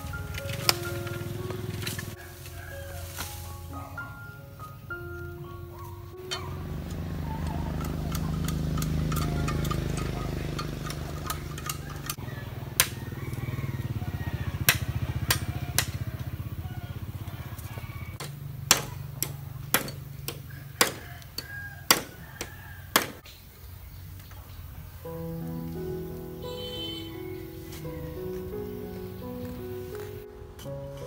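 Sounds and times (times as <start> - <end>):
engine humming: 0.0 - 31.0
machete chopping bamboo: 11.2 - 13.1, 14.6 - 16.1, 18.2 - 23.3.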